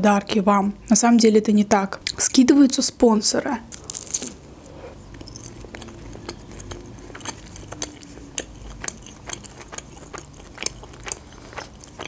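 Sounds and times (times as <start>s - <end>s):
chewing pastry: 3.7s - 12.0s.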